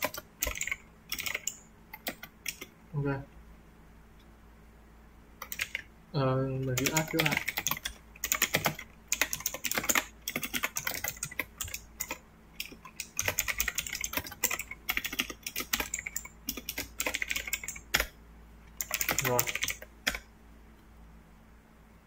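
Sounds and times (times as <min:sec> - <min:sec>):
typing on computer keyboard: 0:00.0 - 0:02.7, 0:05.4 - 0:05.8, 0:06.7 - 0:18.1, 0:18.8 - 0:20.2.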